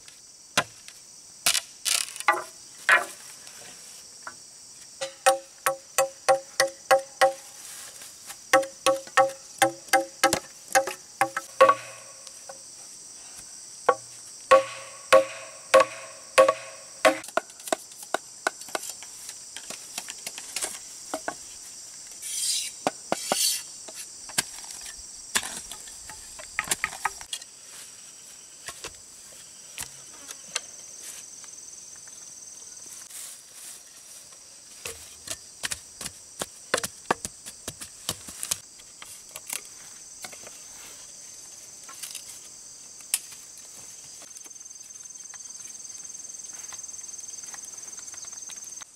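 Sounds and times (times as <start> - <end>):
insects chirring: 0.0 - 48.9
bamboo knocks and taps: 2.2 - 3.1, 5.0 - 7.4, 8.6 - 12.6, 13.9 - 18.9
machete chopping bamboo: 5.0 - 7.4, 8.5 - 12.2, 13.9 - 17.9.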